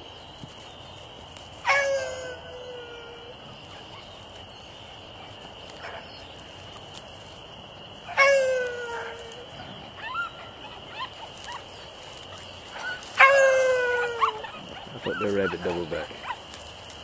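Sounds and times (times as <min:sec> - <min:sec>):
dog yelping: 0:01.6 - 0:03.3, 0:08.1 - 0:16.6
dog bawling: 0:12.8 - 0:16.4.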